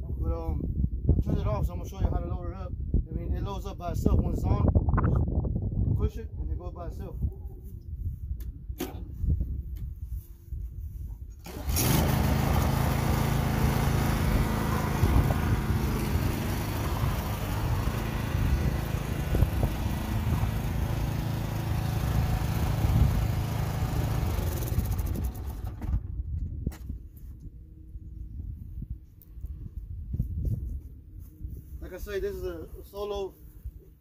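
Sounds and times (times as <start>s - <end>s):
lawn mower engine running: 11.4s - 26.2s.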